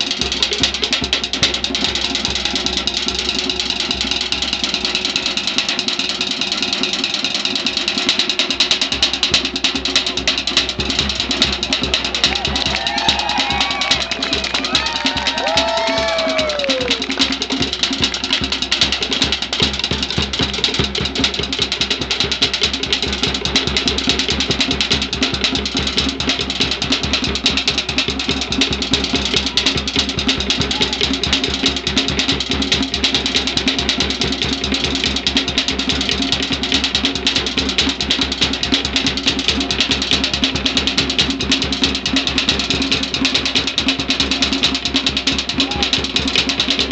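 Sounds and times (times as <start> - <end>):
fast drumming music: 0.0 - 46.9
high rising and falling calls: 12.2 - 17.3.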